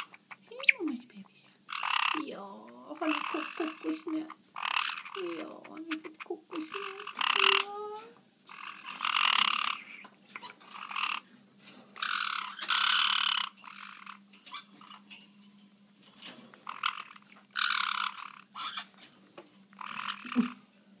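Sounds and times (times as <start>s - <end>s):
parrot harsh raspy squawks: 1.7s - 2.2s, 3.0s - 7.7s, 8.5s - 11.3s, 12.0s - 15.0s, 16.6s - 19.0s, 19.7s - 20.6s.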